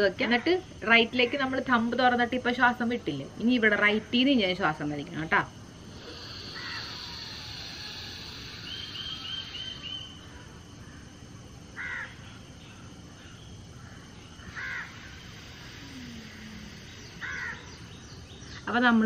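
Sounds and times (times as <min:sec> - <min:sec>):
outdoor background noise: 0:00.0 - 0:19.0
small bird chirping: 0:05.8 - 0:11.0, 0:12.0 - 0:18.8
crow cawing: 0:06.0 - 0:11.1, 0:11.8 - 0:12.2, 0:13.8 - 0:17.8.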